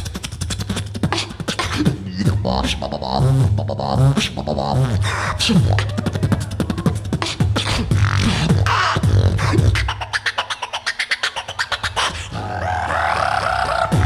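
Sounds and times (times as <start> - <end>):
person beatboxing: 0.0 - 14.0.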